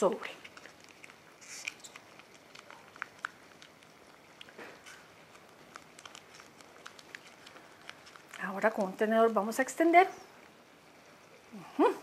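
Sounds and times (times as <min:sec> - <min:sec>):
soft squelching of paste: 0:00.0 - 0:09.4
small clicks and ticks: 0:00.4 - 0:09.4.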